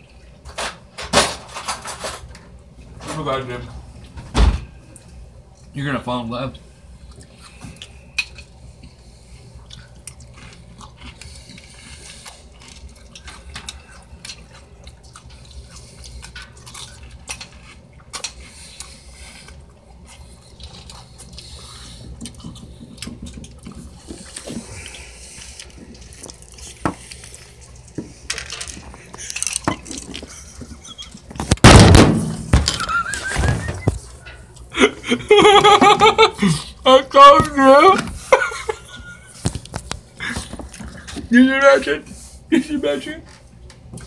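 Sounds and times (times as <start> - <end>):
liquid eating sounds: 6.6 - 31.6, 37.8 - 41.3.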